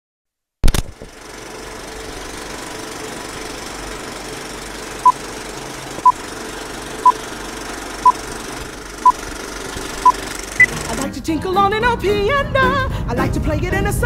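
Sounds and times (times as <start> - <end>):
movie projector whir and clatter: 0.7 - 11.2.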